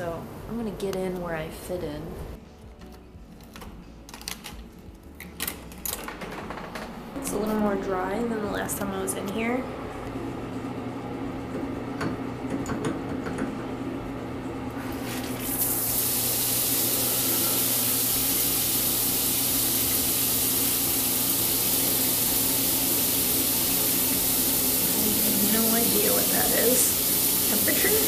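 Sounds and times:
shower water spraying: 0:14.8 - 0:28.0.

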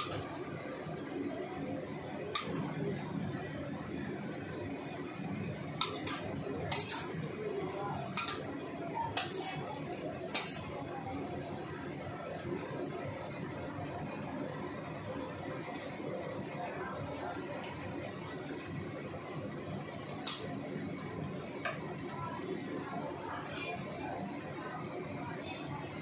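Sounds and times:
metal spatula scraping a wok: 0:00.0 - 0:00.3, 0:02.3 - 0:02.8, 0:05.2 - 0:10.9, 0:20.0 - 0:20.7, 0:23.4 - 0:23.8
food sizzling hiss: 0:05.8 - 0:10.8.

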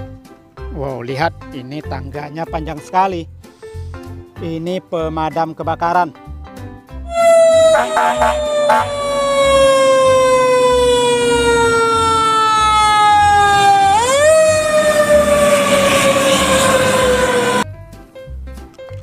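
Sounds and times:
fire truck siren wailing: 0:07.1 - 0:17.6.

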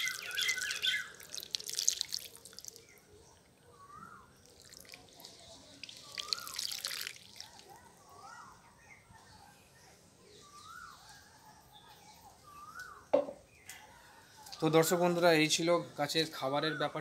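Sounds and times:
water splashing and dripping: 0:00.0 - 0:03.0, 0:04.4 - 0:07.8
bird chirping: 0:00.0 - 0:17.0.

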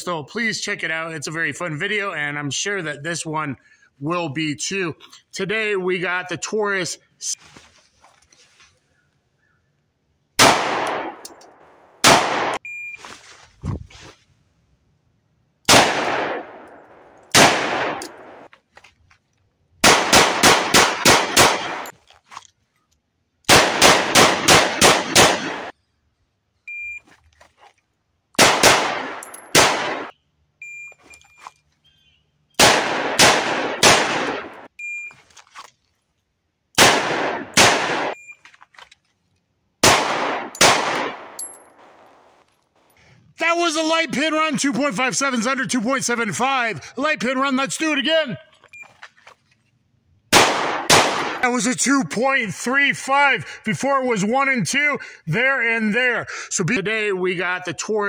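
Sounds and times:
handgun shots echoing: 0:10.4 - 0:12.6, 0:15.7 - 0:18.5, 0:19.8 - 0:21.9, 0:23.5 - 0:25.7, 0:28.4 - 0:30.1, 0:32.6 - 0:34.7, 0:36.8 - 0:38.2, 0:39.8 - 0:42.1, 0:50.3 - 0:51.4.

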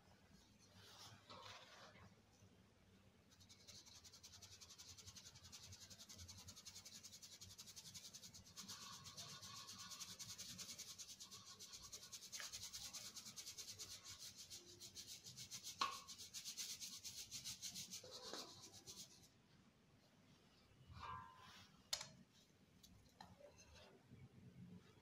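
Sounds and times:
flour sifting through mesh sieve: 0:00.6 - 0:02.1, 0:03.3 - 0:19.3.

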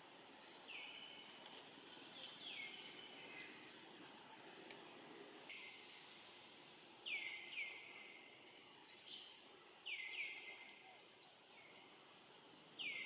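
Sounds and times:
faint outdoor hiss: 0:00.0 - 0:13.0
bird chirping: 0:00.3 - 0:04.8, 0:07.0 - 0:11.9, 0:12.8 - 0:13.0.

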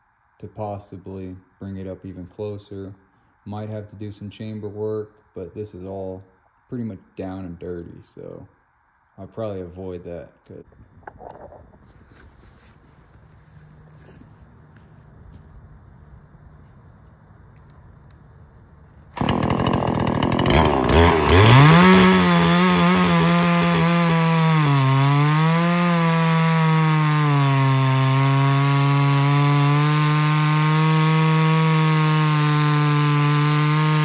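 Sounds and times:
chainsaw cutting log: 0:19.0 - 0:34.0
chainsaw revving to full throttle: 0:19.2 - 0:34.0.

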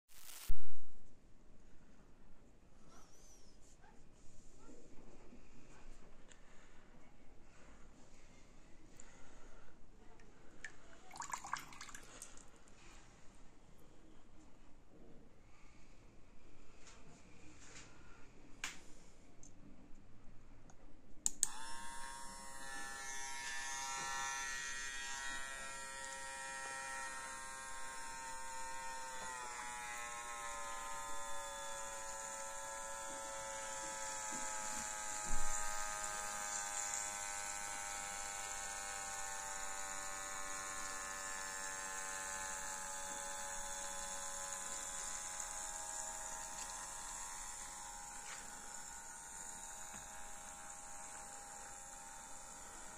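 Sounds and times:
small electric motor whining: 0:00.1 - 0:00.5, 0:21.4 - 0:52.9.

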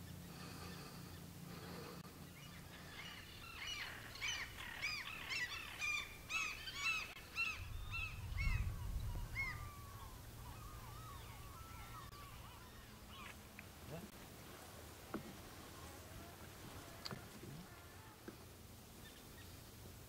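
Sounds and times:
flock of birds calling: 0:00.0 - 0:14.1
low rumble: 0:07.1 - 0:13.0.

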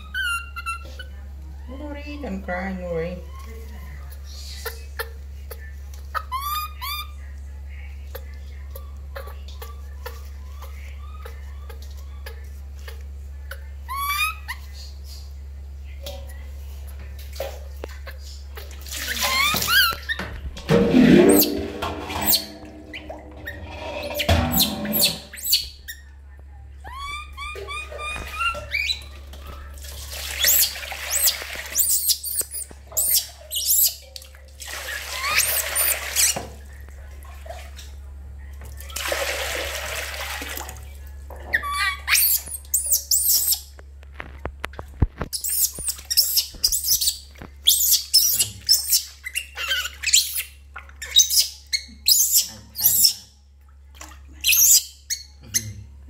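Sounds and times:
baby monkey shrill screeches: 0:13.9 - 0:14.6, 0:23.5 - 0:26.0, 0:26.9 - 0:29.1, 0:30.4 - 0:34.0, 0:41.6 - 0:43.6, 0:45.4 - 0:50.5, 0:51.1 - 0:53.3, 0:54.4 - 0:55.6
water splashing in metal basin: 0:18.6 - 0:25.6, 0:27.7 - 0:38.0, 0:38.7 - 0:43.0, 0:53.9 - 0:54.9.

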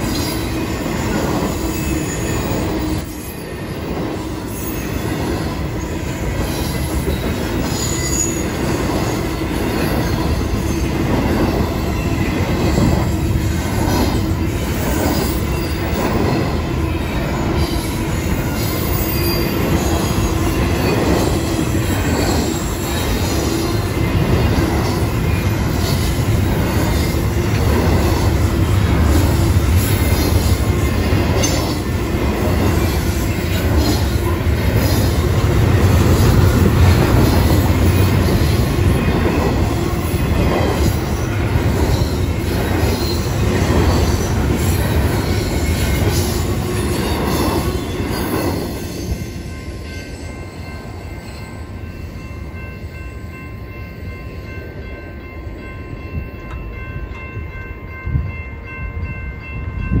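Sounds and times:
train wheels rumbling and clattering: 0:00.0 - 0:50.9
crossing warning bell ringing: 0:00.0 - 1:00.0
wheel squeal: 0:06.5 - 0:08.5.

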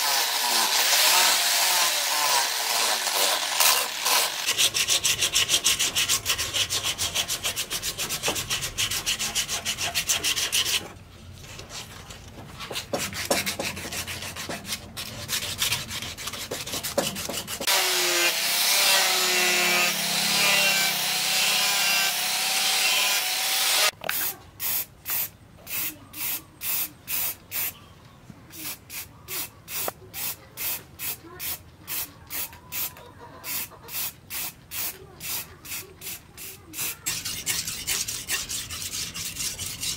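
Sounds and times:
angle grinder sanding steel: 0:00.0 - 0:10.8, 0:17.3 - 0:23.9, 0:36.8 - 0:39.9
hand scraping wooden handle: 0:37.0 - 0:39.9.

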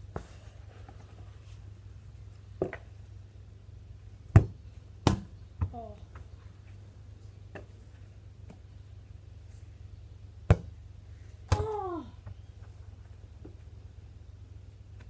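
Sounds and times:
ball thudding and bouncing: 0:02.6 - 0:03.0, 0:04.2 - 0:05.8, 0:10.4 - 0:10.8
football kicked hard: 0:04.3 - 0:05.8, 0:10.5 - 0:10.7
person exclaiming: 0:11.5 - 0:12.2.

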